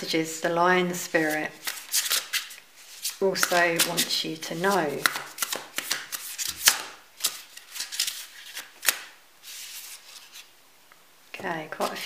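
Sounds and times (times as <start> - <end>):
cards being shuffled: 1.1 - 10.5.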